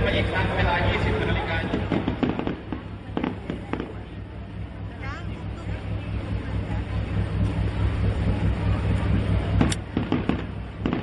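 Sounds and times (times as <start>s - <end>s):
low rumble: 0.0s - 11.0s
firework shell bursting: 1.4s - 4.2s, 9.5s - 11.0s
firework crackling pops: 1.5s - 4.2s, 9.6s - 11.0s.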